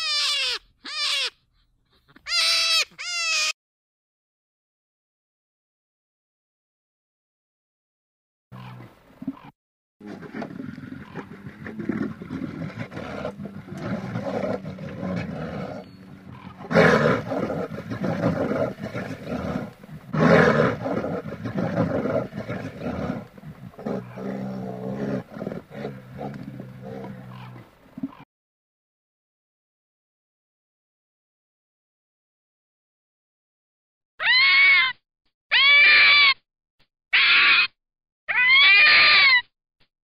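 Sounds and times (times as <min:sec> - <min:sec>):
bear growling and roaring: 0:10.0 - 0:28.2.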